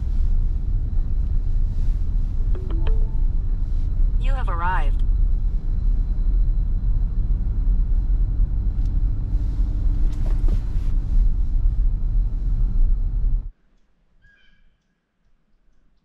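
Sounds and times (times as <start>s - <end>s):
car engine and tyres rumble: 0.0s - 13.6s.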